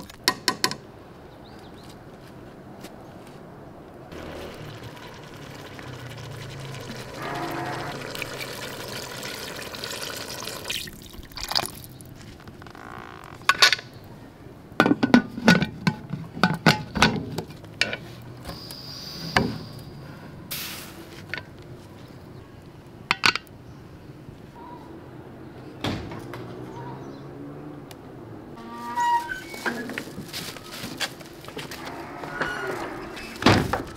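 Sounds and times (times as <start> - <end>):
water pouring into a pot: 4.1 - 12.0.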